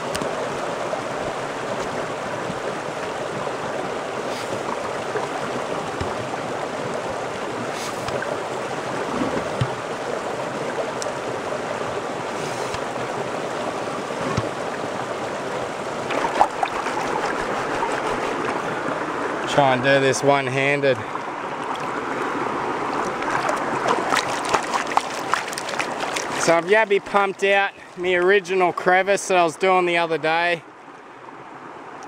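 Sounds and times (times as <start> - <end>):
creek water running over rocks: 0.0 - 32.0
light knocks and splashes: 4.3 - 6.4, 9.1 - 9.9, 14.2 - 14.6, 16.1 - 18.7, 23.0 - 26.5.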